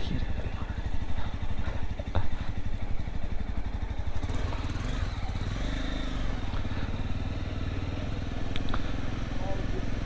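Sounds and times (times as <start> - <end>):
motorcycle engine idling: 0.0 - 10.0.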